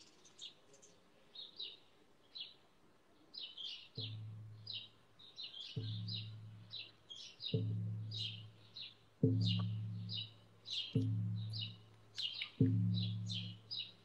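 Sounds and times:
birds chirping: 0.0 - 2.6, 3.2 - 14.0
frame drum strikes ringing: 9.2 - 11.8.

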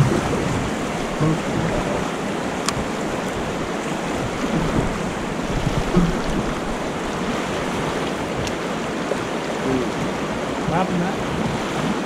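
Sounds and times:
river water rushing: 0.0 - 12.0.

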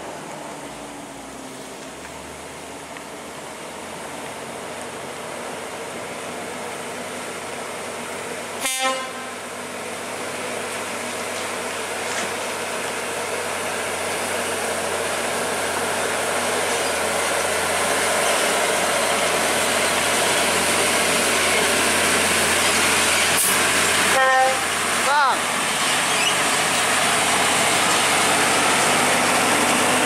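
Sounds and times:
truck horn blast: 8.6 - 9.4, 24.1 - 24.7
truck diesel engine straining: 9.4 - 30.0.

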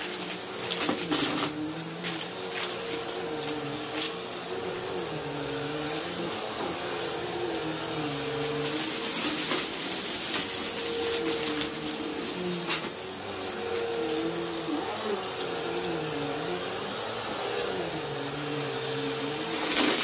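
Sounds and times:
vacuum cleaner motor whine: 0.0 - 20.0.

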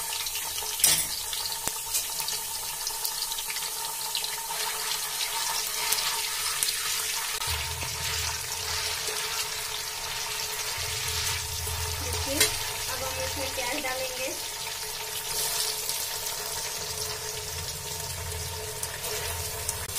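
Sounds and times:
food sizzling in hot oil: 0.0 - 19.9.

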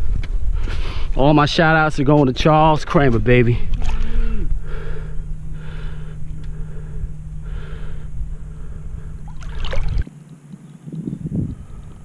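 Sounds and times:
steady low hum: 0.0 - 12.0
person breathing heavily: 0.5 - 1.2, 3.6 - 9.9.

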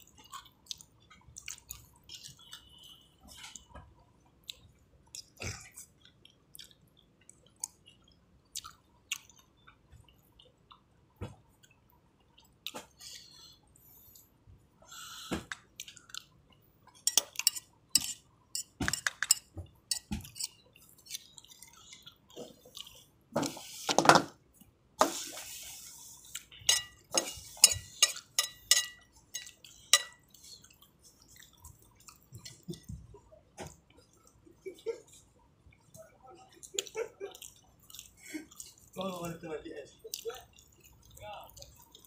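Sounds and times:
wet eating sounds: 0.0 - 42.0
metal spoon scraping a bowl: 17.1 - 21.2, 26.7 - 30.1.

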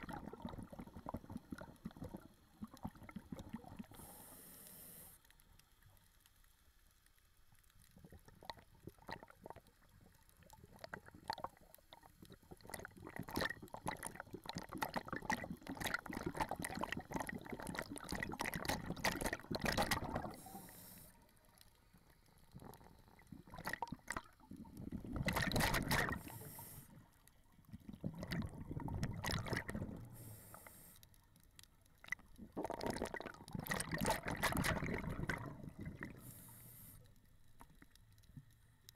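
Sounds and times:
exhaled bubbles gurgling: 0.0 - 4.2, 7.9 - 21.3, 22.2 - 30.7, 32.0 - 36.9
regulator inhalation hiss: 4.0 - 5.2, 20.3 - 21.2, 26.2 - 27.0, 30.2 - 31.0, 36.2 - 37.1.

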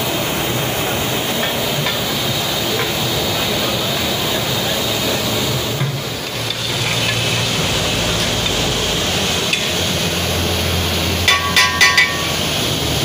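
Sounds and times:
steady rushing background noise: 0.0 - 13.0
metal rod clinking on pot rim: 11.3 - 12.4.

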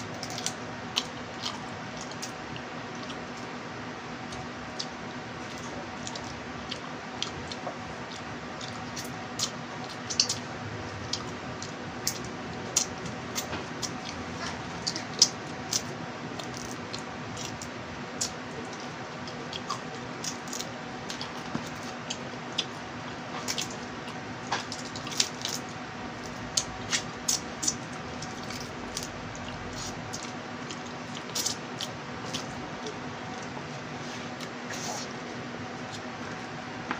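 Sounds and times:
steady low hum: 0.0 - 36.9
wet chewing and lip smacks: 0.2 - 3.5, 4.3 - 22.8, 23.4 - 33.8.

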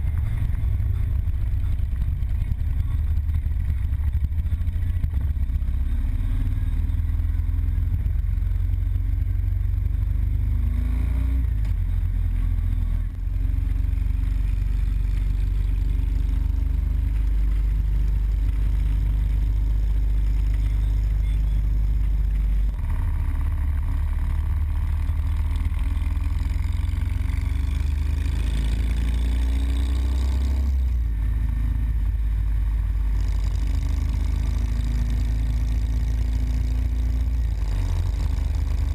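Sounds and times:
motorcycle engine running: 0.0 - 38.9.

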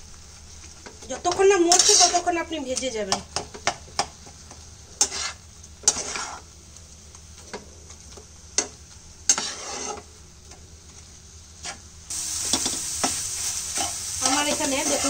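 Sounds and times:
food sizzling: 0.0 - 15.0
spatula scraping frying pan: 1.2 - 2.3, 4.4 - 6.6, 8.6 - 10.1, 11.6 - 15.0.

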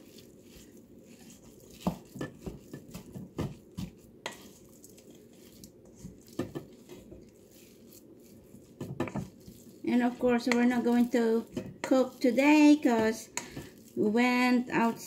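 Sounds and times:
wet squishes of mashed meat: 0.0 - 15.0
spatula knocking against bowl: 6.3 - 7.0, 8.8 - 9.4, 10.4 - 10.8, 11.4 - 12.1.

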